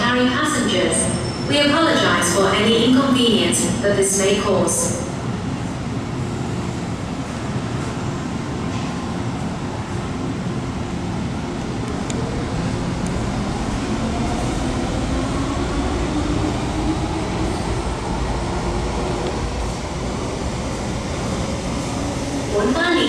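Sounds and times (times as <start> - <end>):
train rumble: 5.2 - 23.0.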